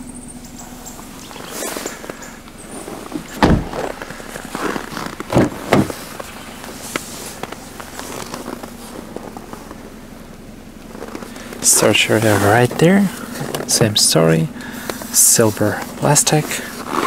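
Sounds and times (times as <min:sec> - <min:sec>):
rustling: 0:00.7 - 0:10.2, 0:10.8 - 0:13.9
dull thumps: 0:02.7 - 0:07.7.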